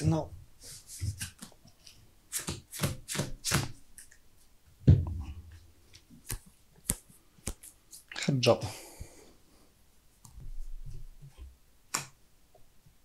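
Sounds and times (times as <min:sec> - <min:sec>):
playing cards sliding on cloth: 0:00.6 - 0:02.6.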